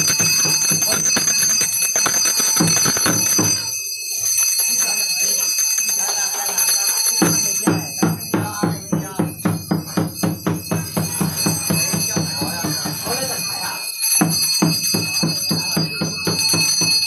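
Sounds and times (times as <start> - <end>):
drum beaten fast: 0.0 - 3.8, 7.2 - 17.0
steady high ringing: 0.0 - 17.0.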